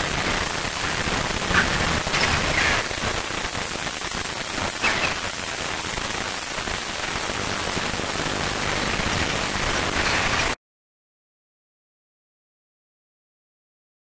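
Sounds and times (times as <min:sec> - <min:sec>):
steady outdoor hiss: 0:00.0 - 0:10.6.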